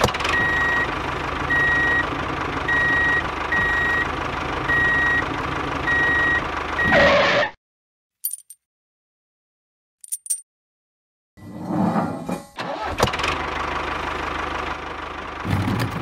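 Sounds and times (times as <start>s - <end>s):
engine running: 0.0s - 7.5s, 12.6s - 16.0s
reversing alarm beeping: 0.3s - 2.1s, 2.7s - 4.1s, 4.7s - 5.3s, 5.9s - 7.1s.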